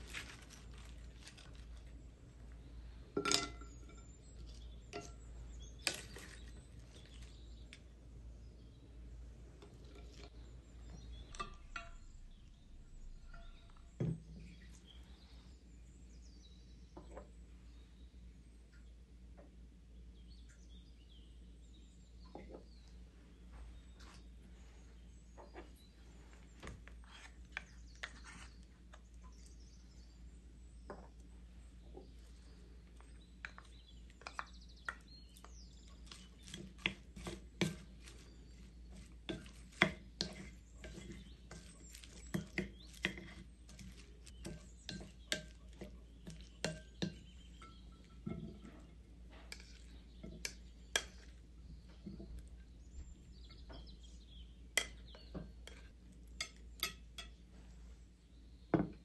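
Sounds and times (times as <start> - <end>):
utensils knocking against bowls: 3.2 - 4.1, 35.9 - 51.4.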